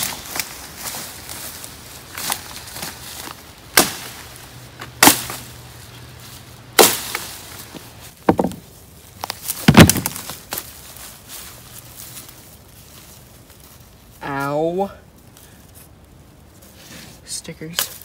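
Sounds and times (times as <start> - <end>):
wood chopping: 3.7 - 4.2, 4.8 - 5.4, 6.8 - 7.3, 8.2 - 8.6, 9.5 - 10.4.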